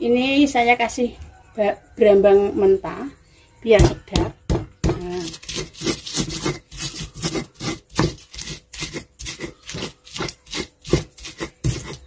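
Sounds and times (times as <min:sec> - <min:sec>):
stone pestle grinding in mortar: 0:04.2 - 0:12.0.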